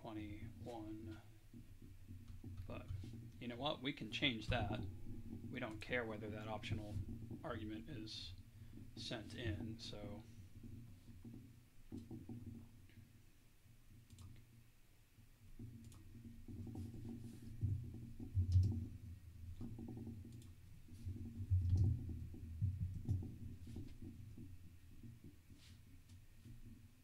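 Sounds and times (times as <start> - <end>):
typing on keyboard: 14.1 - 14.4, 15.7 - 16.9, 18.3 - 18.9, 19.6 - 20.6, 21.2 - 22.1, 22.7 - 24.0
mouse clicking: 14.1 - 14.5, 15.7 - 16.0.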